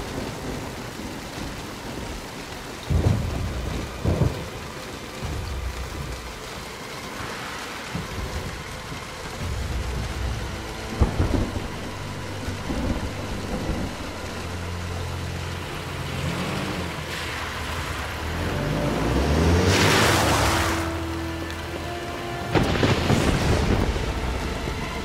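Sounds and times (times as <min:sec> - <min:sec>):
dramatic film score: 0:00.0 - 0:25.0
steady rain: 0:00.0 - 0:25.0
loud rushing swell: 0:09.4 - 0:21.3.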